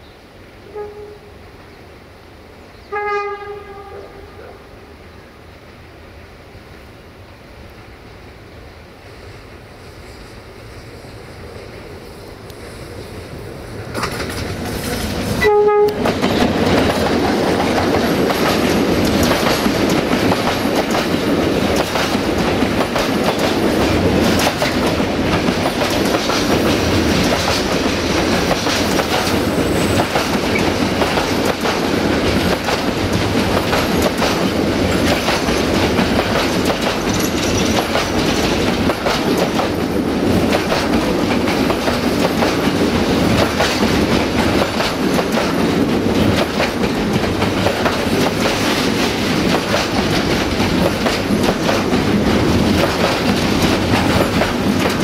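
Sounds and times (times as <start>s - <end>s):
train wheels clattering over rails: 13.7s - 55.0s.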